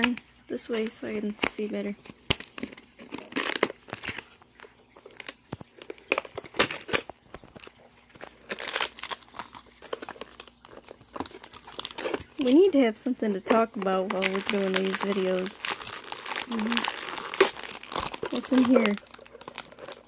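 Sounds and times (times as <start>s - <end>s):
plastic and foil packaging crinkling: 0.0s - 20.0s.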